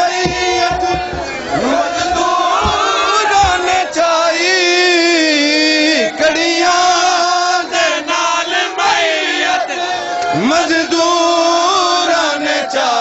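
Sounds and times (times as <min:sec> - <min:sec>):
man chanting a lament: 0:10.3 - 0:13.0.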